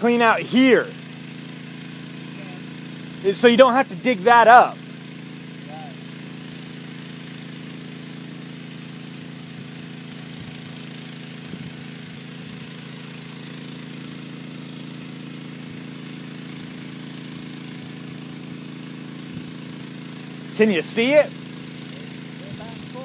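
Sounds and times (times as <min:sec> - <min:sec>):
engine running steadily: 0:00.0 - 0:23.0.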